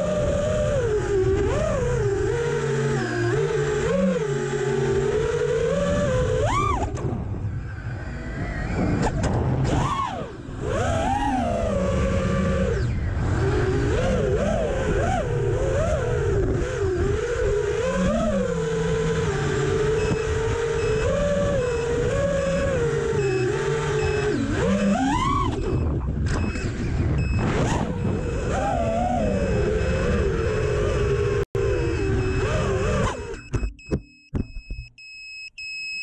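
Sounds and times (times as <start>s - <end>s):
drone motors whining: 0.0s - 34.9s.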